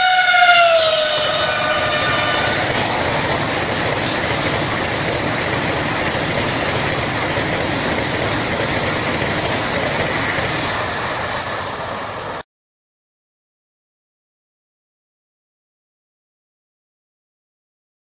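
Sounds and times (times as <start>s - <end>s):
train passing at speed: 0.0s - 12.4s.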